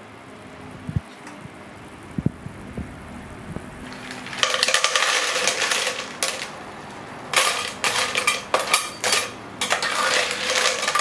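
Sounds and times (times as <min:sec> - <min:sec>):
shells clattering in a pan: 0:03.8 - 0:11.0.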